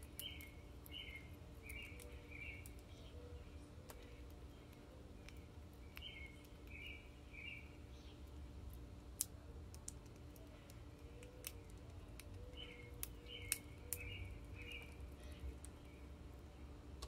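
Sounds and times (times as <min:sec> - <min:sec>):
bird chirps: 0:00.2 - 0:08.3, 0:10.5 - 0:16.1
beak pecking seeds on plastic tray: 0:03.7 - 0:07.0, 0:08.1 - 0:15.8.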